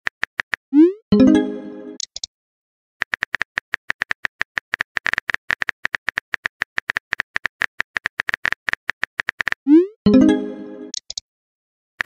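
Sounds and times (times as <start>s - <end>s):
phone keyboard typing clicks: 10.9s - 11.2s.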